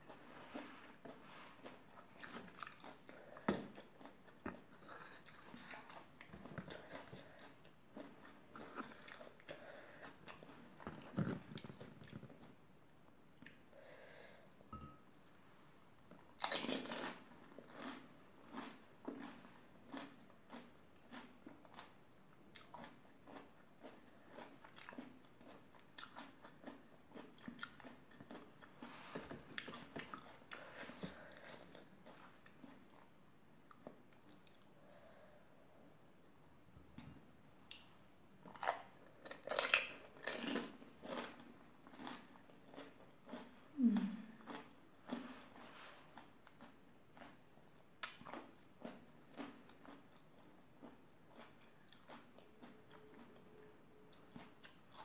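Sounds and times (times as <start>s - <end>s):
crisp shells crunching while chewed: 38.5s - 47.4s.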